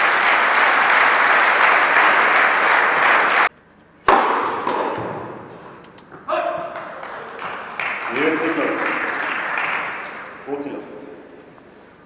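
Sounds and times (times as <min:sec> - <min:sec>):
crowd applauding indoors: 0:00.0 - 0:03.5, 0:06.7 - 0:10.9.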